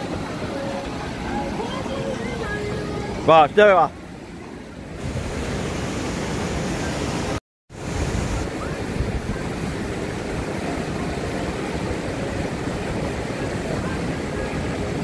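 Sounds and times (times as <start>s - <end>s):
waterfall splashing: 0.0s - 15.0s
wind buffeting microphone: 7.8s - 15.0s.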